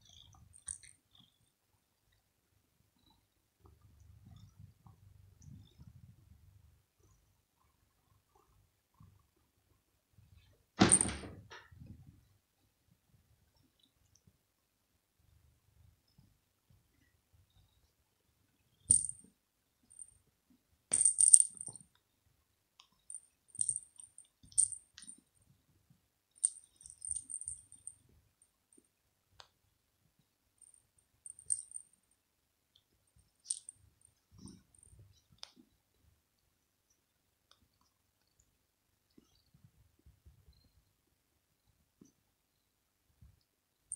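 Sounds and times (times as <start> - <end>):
small bell jingling: 18.9 - 19.2, 20.9 - 21.8, 23.1 - 25.1, 26.4 - 28.0, 30.6 - 31.9, 33.4 - 33.8.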